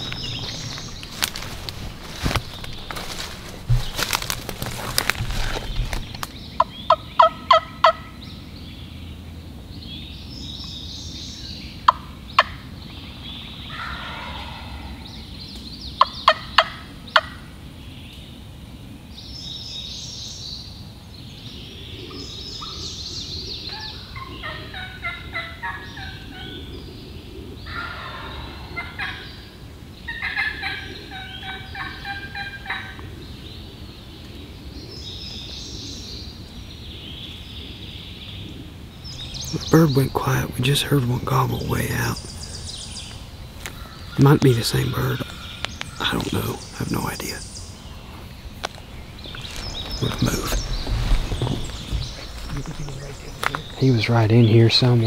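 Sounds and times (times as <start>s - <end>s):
distant turkey gobbling: 0.0s - 8.2s, 13.7s - 15.1s, 16.0s - 17.4s, 23.6s - 26.8s, 27.6s - 33.2s, 39.2s - 54.9s
songbirds singing: 0.0s - 55.0s
sharp turkey clucks: 6.6s - 8.1s, 16.0s - 17.4s, 23.7s - 26.6s, 30.1s - 33.1s.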